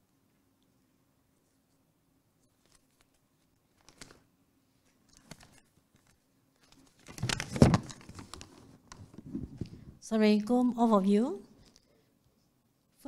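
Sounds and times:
microphone handling rustling: 7.0 - 10.0.

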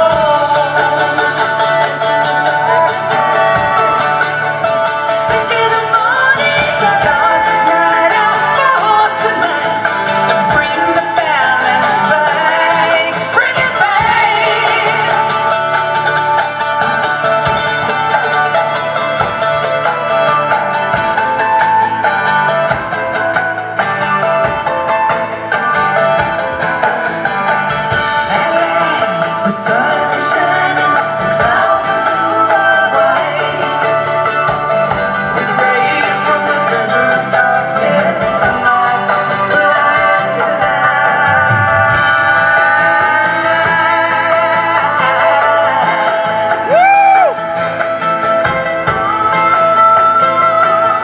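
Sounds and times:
women singing: 0.0 - 15.9, 27.9 - 47.4, 48.9 - 51.0
acoustic guitar: 0.0 - 51.0
strummed mandolin: 0.0 - 51.0.

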